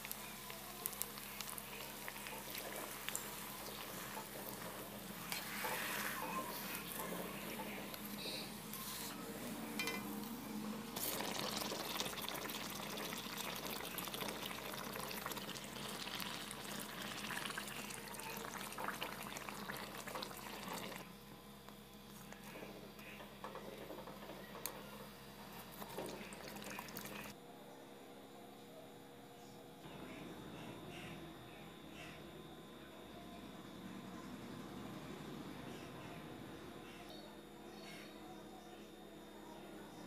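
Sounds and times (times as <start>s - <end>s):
food deep-frying in hot oil: 0.0s - 8.2s, 10.9s - 21.1s, 23.0s - 27.4s.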